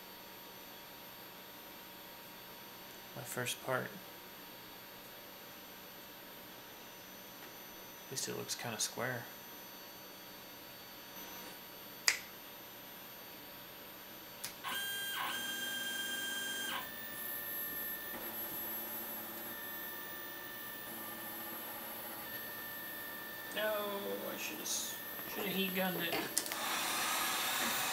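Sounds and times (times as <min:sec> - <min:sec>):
sharp click: 0:12.0 - 0:12.3
stepper motors whining: 0:14.6 - 0:27.9.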